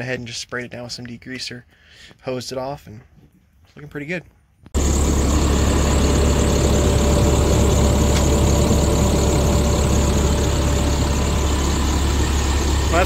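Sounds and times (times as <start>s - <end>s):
diesel engine idling: 4.8s - 13.0s
mid-pitched engine whine: 4.8s - 13.0s.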